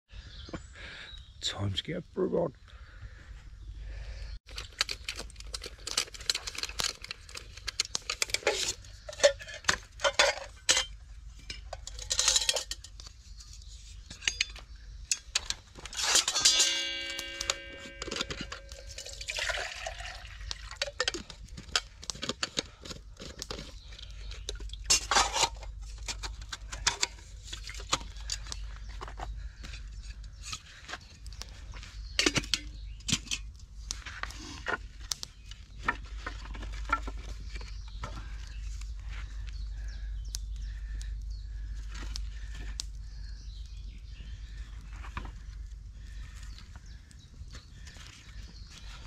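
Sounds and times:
metal cookware clinking: 8.2s - 13.0s, 15.9s - 20.1s
metallic clank ringing: 16.0s - 19.2s.

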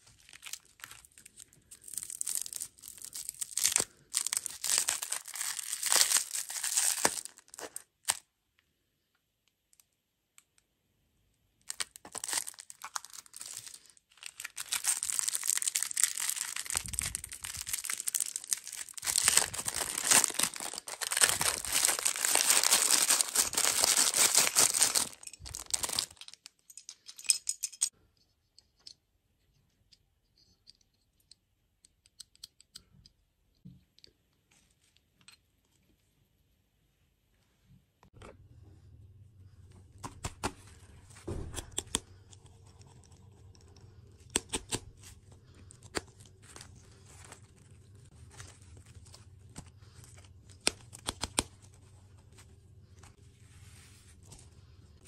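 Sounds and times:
plastic wrappers crinkling and tearing: 0.0s - 8.2s, 11.6s - 26.6s, 44.2s - 51.7s.

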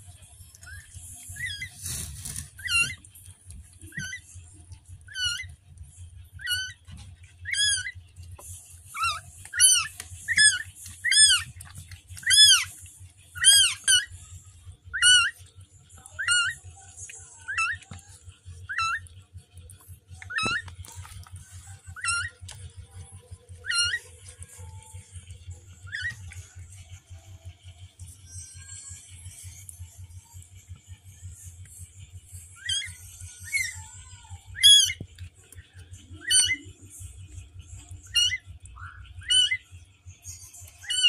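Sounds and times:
kittens mewing: 5.0s - 8.0s.

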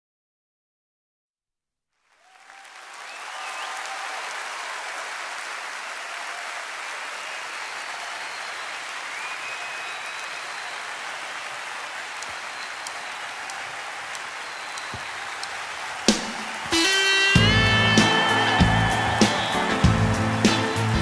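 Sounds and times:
audience applauding and cheering: 2.0s - 21.0s
whistles: 2.2s - 4.4s, 6.9s - 21.0s.

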